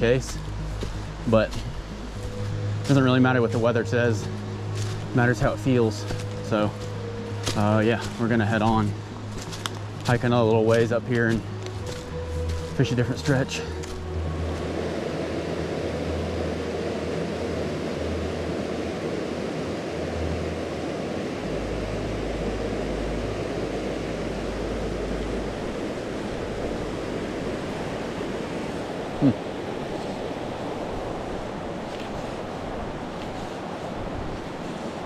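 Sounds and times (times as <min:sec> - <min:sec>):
water rushing over rocks: 0:00.0 - 0:35.0.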